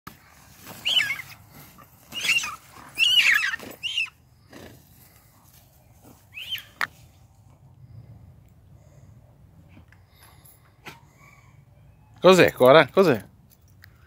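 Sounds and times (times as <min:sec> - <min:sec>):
animal squealing: 0:00.8 - 0:01.4, 0:02.1 - 0:04.2.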